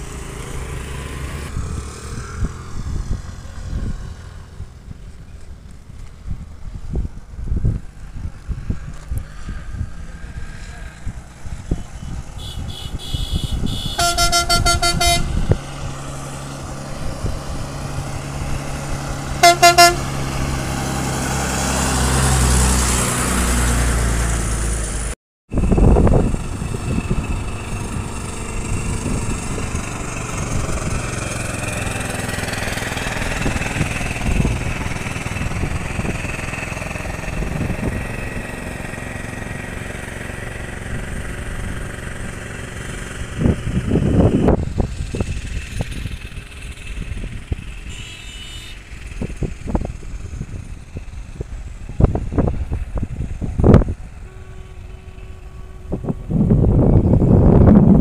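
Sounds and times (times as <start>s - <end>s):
bus engine climbing: 0.0s - 58.0s
outdoor noise: 0.0s - 58.0s
bus horn: 12.0s - 15.8s, 19.4s - 20.4s, 47.7s - 49.3s, 53.8s - 57.2s.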